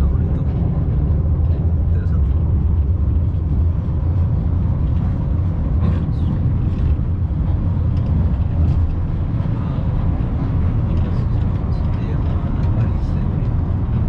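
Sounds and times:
funicular car rumbling: 0.0s - 14.0s.

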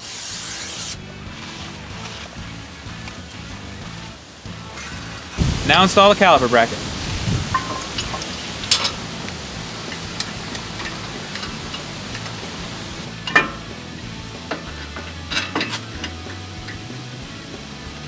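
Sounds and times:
sharp metal clank: 7.5s - 9.0s, 13.1s - 16.9s
metal clinks and knocks: 7.5s - 17.0s.

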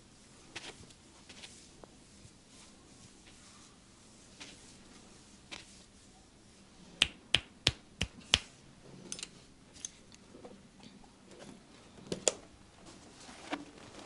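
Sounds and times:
soft rustling: 0.0s - 6.9s, 12.7s - 14.0s
finger snaps: 7.0s - 8.5s.

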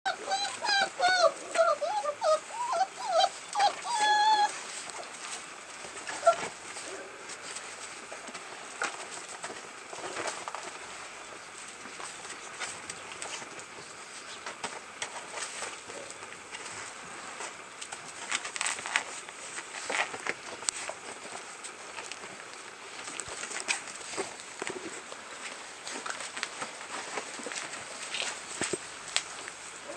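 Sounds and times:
puppy whining and yelping: 0.1s - 4.8s, 6.0s - 6.6s.

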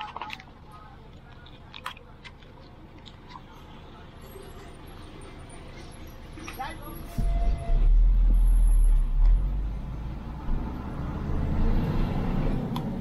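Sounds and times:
motor vehicle rumble: 0.0s - 13.0s.

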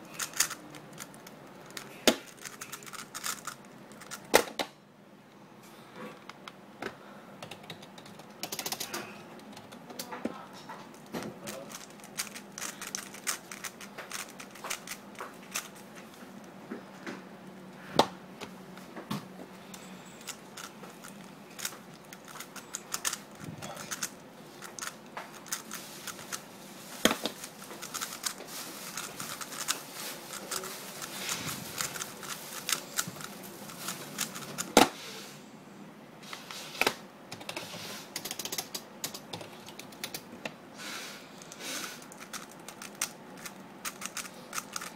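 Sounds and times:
puzzle cube clicking: 0.1s - 4.3s, 7.6s - 9.0s, 11.5s - 15.8s, 20.2s - 26.4s, 27.1s - 29.8s, 30.4s - 34.9s, 41.5s - 44.9s.

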